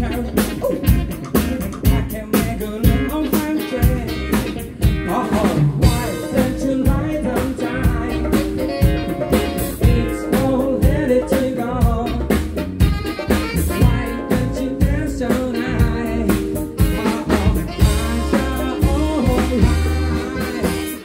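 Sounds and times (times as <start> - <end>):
man singing: 0.0 - 12.6, 13.2 - 21.0
drum kit beat: 0.0 - 21.0
electric guitar: 0.0 - 21.0
keyboard: 0.0 - 21.0
saxophones: 8.1 - 9.8, 16.8 - 21.0.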